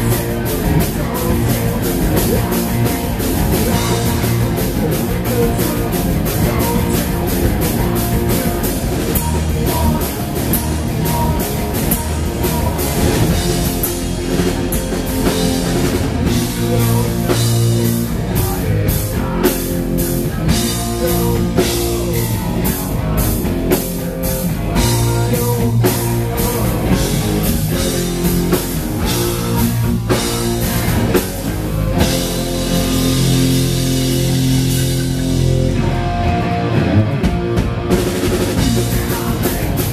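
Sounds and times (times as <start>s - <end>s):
bass guitar: 0.0s - 39.9s
drum kit: 0.0s - 39.9s
electric guitar: 0.0s - 39.9s.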